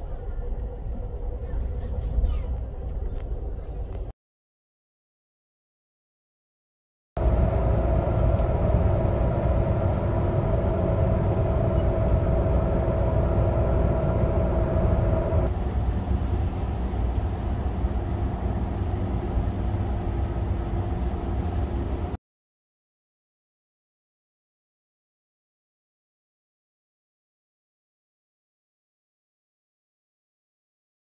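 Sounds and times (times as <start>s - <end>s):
steady hum: 7.2s - 22.2s
train wheels rumbling: 7.2s - 22.2s.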